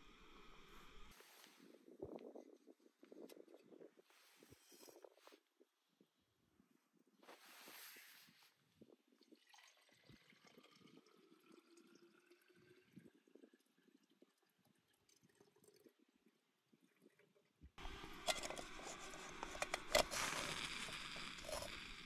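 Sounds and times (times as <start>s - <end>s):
water pouring into pot: 9.2s - 16.0s.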